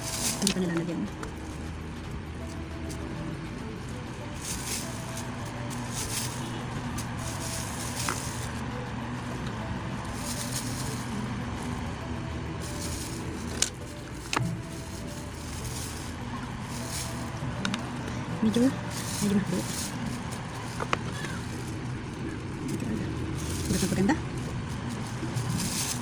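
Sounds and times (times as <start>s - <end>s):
comb brushing through wet hair: 0.0s - 0.6s, 4.4s - 8.6s, 14.8s - 17.3s, 24.8s - 26.0s
steady low hum: 0.0s - 26.0s.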